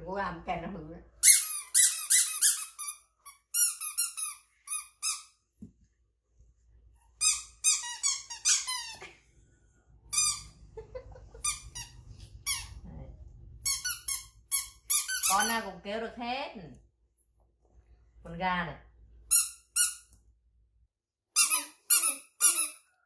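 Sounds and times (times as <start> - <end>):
rubber squeeze toys squeaking: 1.2 - 5.3, 7.0 - 9.1, 10.1 - 10.6, 11.4 - 12.8, 13.6 - 15.6, 21.4 - 22.9.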